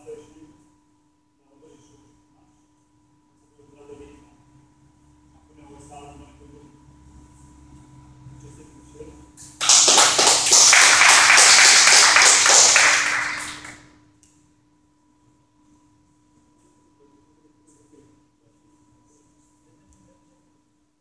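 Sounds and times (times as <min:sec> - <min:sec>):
people applauding: 0:09.6 - 0:13.9.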